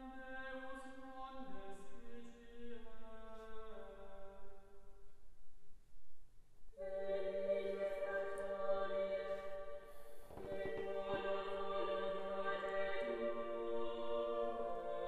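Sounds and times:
choir singing a hymn: 0:06.8 - 0:15.0.

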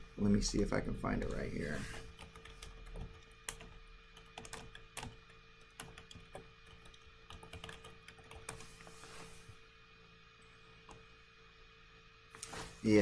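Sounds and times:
typing on computer keyboard: 0:01.2 - 0:08.7.

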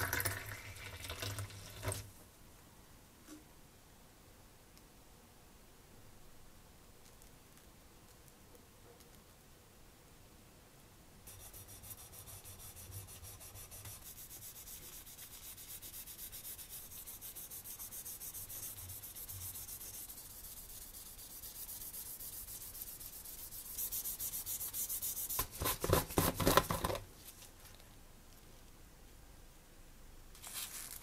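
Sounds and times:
sandpaper scratching plastic: 0:11.3 - 0:27.0.

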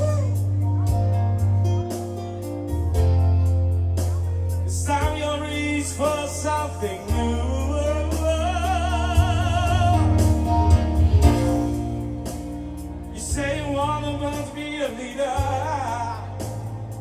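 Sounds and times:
man singing with vibrato: 0:00.0 - 0:00.6, 0:04.7 - 0:10.8, 0:13.0 - 0:17.0
deep bass and sustained chords: 0:00.0 - 0:17.0.

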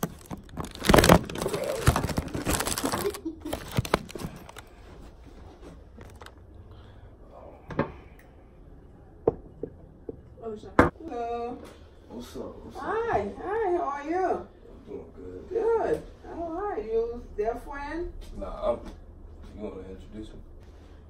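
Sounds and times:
phone handling rustling: 0:00.0 - 0:04.6.

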